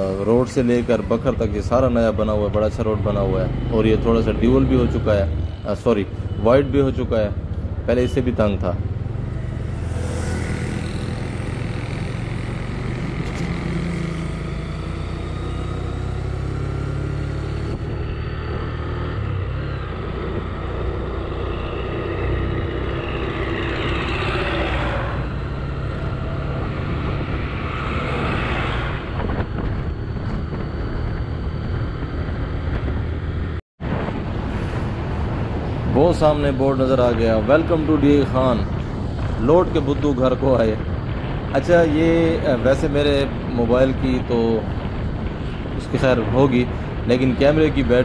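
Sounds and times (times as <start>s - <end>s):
wind and road noise: 0.0s - 48.0s
loud rushing sound: 7.8s - 15.1s
motorcycle engine running: 8.9s - 18.9s.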